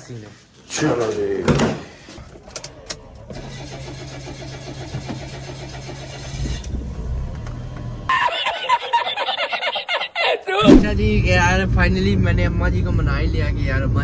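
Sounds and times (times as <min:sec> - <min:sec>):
car engine starting and idling: 0:02.5 - 0:08.1
man laughing loudly: 0:08.1 - 0:10.7.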